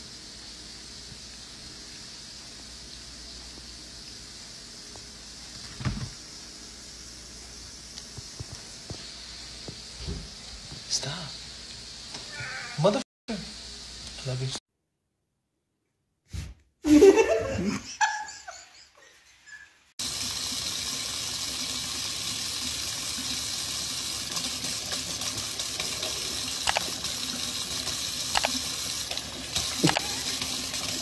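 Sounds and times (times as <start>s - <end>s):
faucet running into sink: 20.0s - 31.0s.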